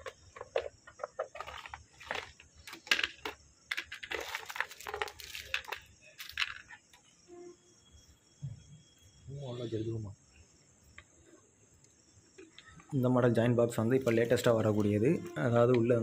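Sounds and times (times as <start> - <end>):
hands handling plastic gear: 0.0 - 6.8.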